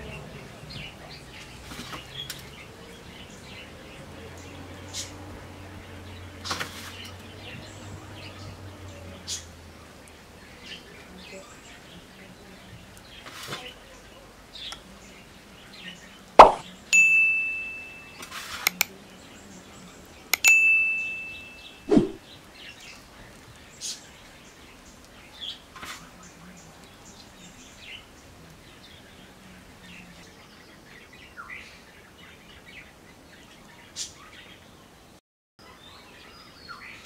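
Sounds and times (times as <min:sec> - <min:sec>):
dull thump: 0:16.4 - 0:16.6
bird chirps: 0:16.4 - 0:18.9, 0:20.3 - 0:23.0
bell ding: 0:17.0 - 0:18.4, 0:20.4 - 0:22.0
mouse click: 0:18.6 - 0:18.9.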